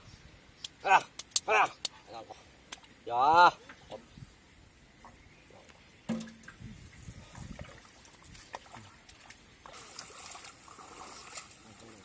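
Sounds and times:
shallow water trickling and splashing: 4.9 - 12.0.

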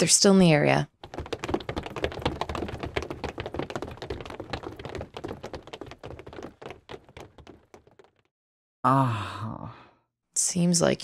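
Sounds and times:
many footsteps hurrying: 0.9 - 8.3.

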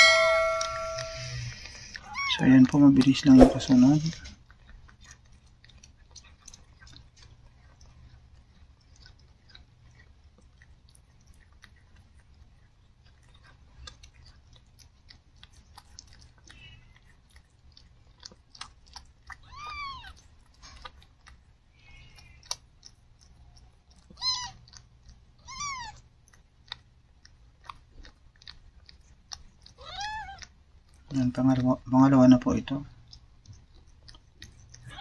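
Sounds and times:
kitten mewing: 0.0 - 2.5, 19.3 - 20.2, 24.0 - 24.7, 25.4 - 26.1, 29.7 - 30.5, 34.8 - 35.0
cat licking and chewing: 0.0 - 35.0.

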